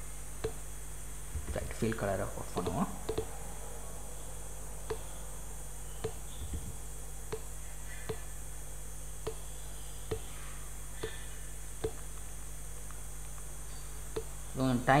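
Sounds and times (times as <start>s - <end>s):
electrical hum and hiss: 0.0s - 15.0s
computer mouse clicking: 2.6s - 3.3s.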